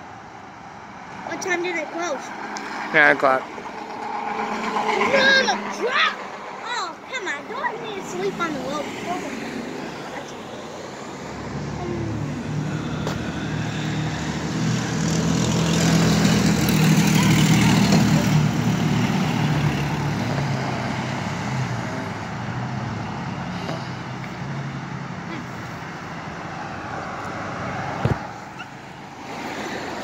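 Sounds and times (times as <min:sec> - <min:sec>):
vehicle driving past: 0:07.8 - 0:25.0.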